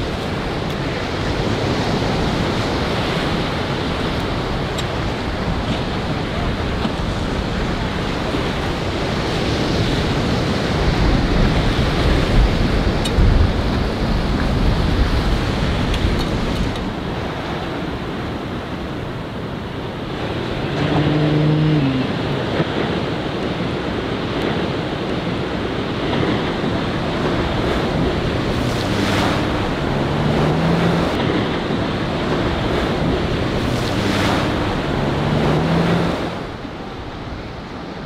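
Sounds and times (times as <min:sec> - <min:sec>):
motorboat engine: 0:00.0 - 0:38.0
wind on microphone: 0:00.0 - 0:38.0
surf breaking: 0:20.2 - 0:37.5.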